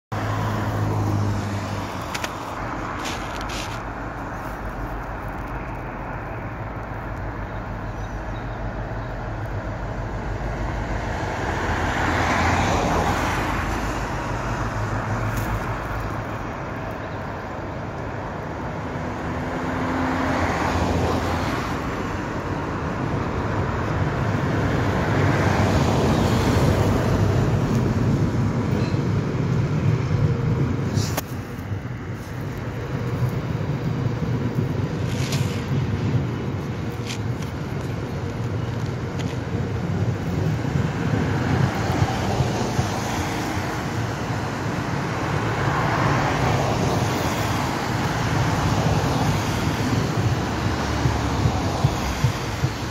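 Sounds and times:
road traffic passing: 0.0 - 52.9
diesel locomotive drone: 0.1 - 52.9.

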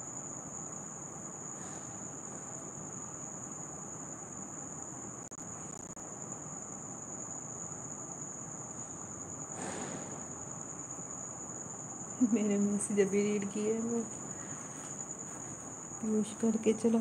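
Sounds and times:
crickets chirping: 0.0 - 17.0
low background hiss: 10.2 - 17.0.

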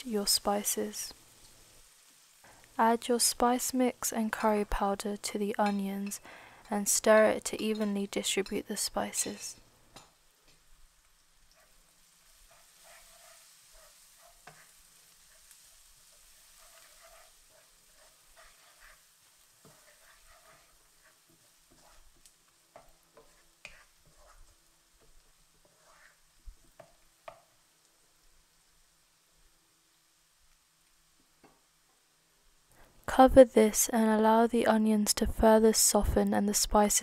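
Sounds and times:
onions sizzling in oil: 0.0 - 32.7
wooden spoon scraping wok: 3.3 - 9.6, 11.4 - 27.5.

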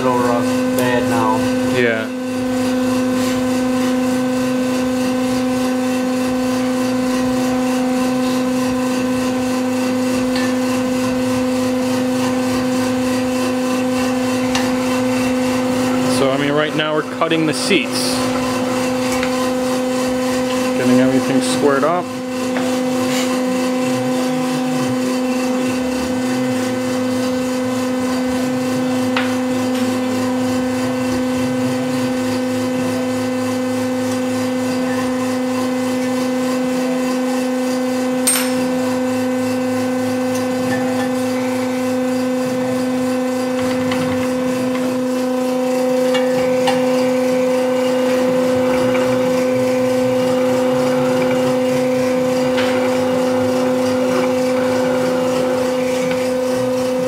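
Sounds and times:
cutting machine humming: 0.0 - 57.0.

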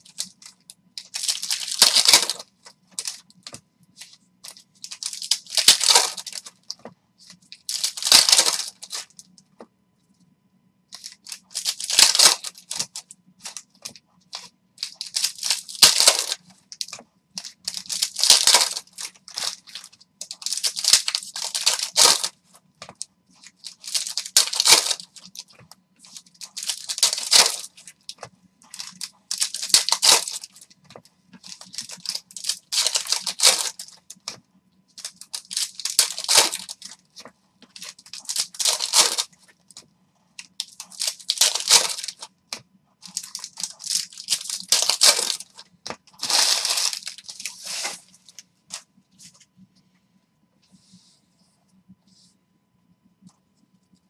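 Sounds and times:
foil wrappers tearing and crinkling: 0.0 - 3.3, 4.0 - 6.8, 7.5 - 9.2, 11.0 - 30.7, 31.4 - 34.4, 35.0 - 39.4, 40.4 - 42.3, 43.0 - 45.6, 46.2 - 48.4.

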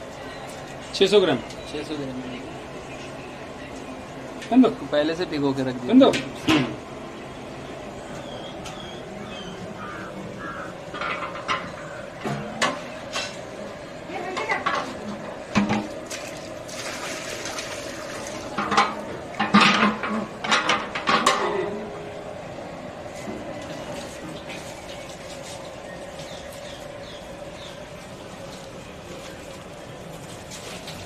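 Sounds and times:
steady background hum: 0.0 - 31.0
metal pots clanking: 10.9 - 13.4, 18.5 - 21.8
liquid sloshing: 15.7 - 20.1, 27.9 - 31.0.

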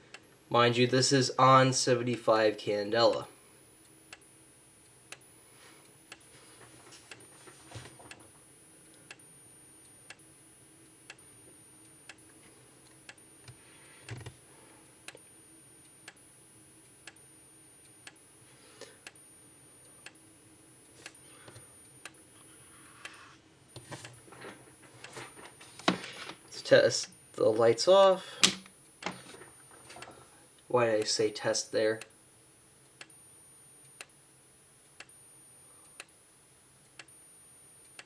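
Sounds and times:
strobe flash tick: 3.8 - 6.3.

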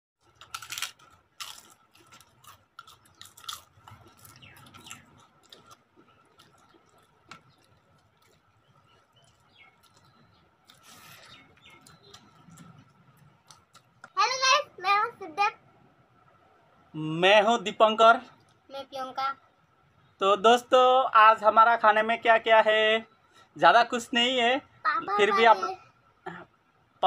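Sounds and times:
chewing: 0.2 - 14.2
fried papad crunching: 0.2 - 14.2.

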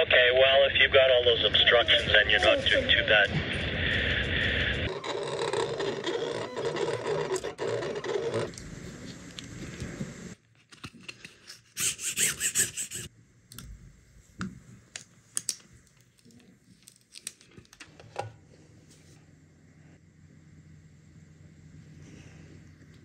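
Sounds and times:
transfer tape crinkling and peeling: 15.4 - 17.8.

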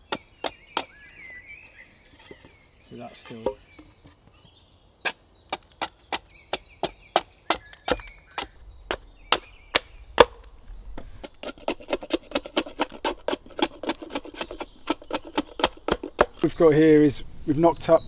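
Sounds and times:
axe chopping wood: 0.0 - 1.0, 5.5 - 16.5.

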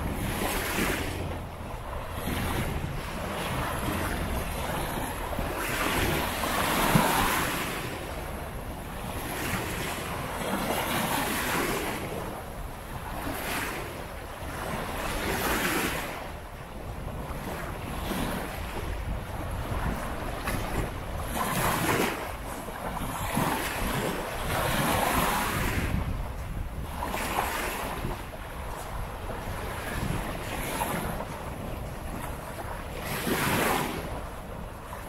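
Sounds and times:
sea waves breaking on shore: 0.0 - 35.0
wind rumbling on microphone: 0.0 - 35.0.

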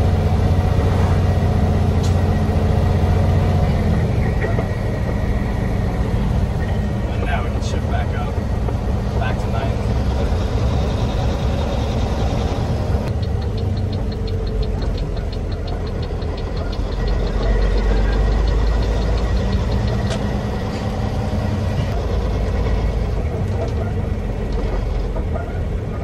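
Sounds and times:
truck diesel engine rumble: 0.0 - 26.0
fast even ticking: 13.0 - 20.7.

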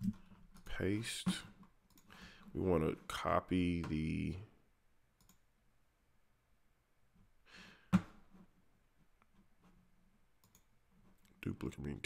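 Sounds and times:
soft breath: 2.1 - 2.5, 7.4 - 8.0
computer mouse click: 5.2 - 5.4, 10.4 - 10.7.

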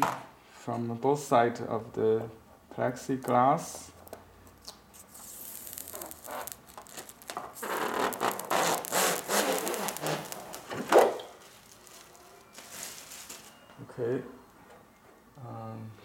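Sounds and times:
plastic film peeling and crackling: 3.1 - 13.6.

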